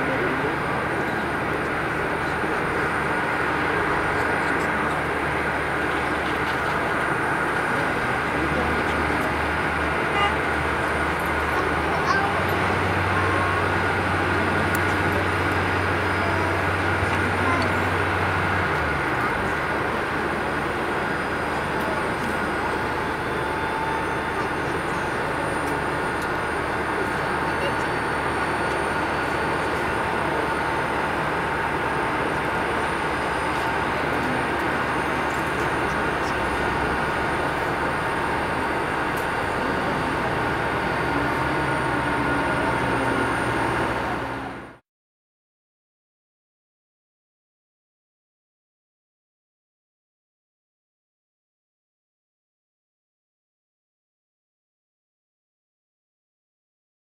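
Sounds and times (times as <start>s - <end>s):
aircraft auxiliary power unit running: 0.0s - 44.8s
airport apron noise: 0.0s - 44.8s
ground vehicle engine drone: 0.0s - 44.8s
held whine: 0.0s - 44.8s.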